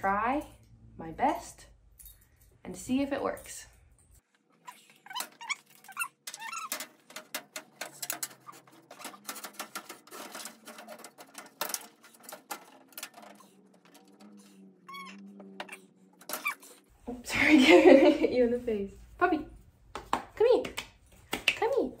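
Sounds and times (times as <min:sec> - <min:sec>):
glass shelf squeaking and scraping: 0:04.6 - 0:16.9.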